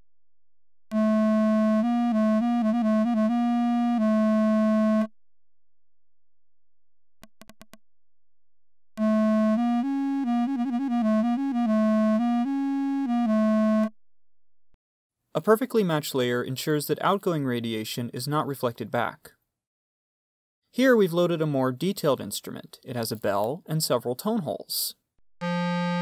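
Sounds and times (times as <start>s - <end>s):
low clarinet tone: 0.9s - 5.1s, 9.0s - 13.9s, 25.4s - 26.0s.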